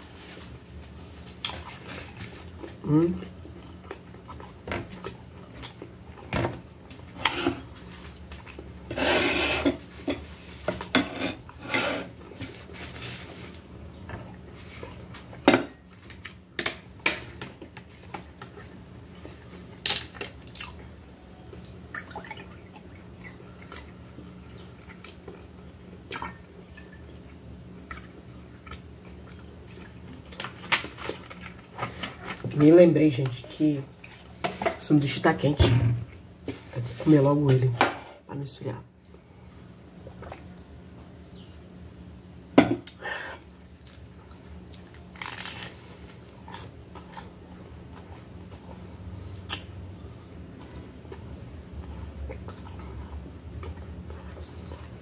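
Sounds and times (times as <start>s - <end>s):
low steady hum: 0.0s - 55.0s
chewing on toasted sandwich: 0.9s - 8.9s, 17.5s - 26.6s, 27.6s - 32.4s, 43.5s - 55.0s.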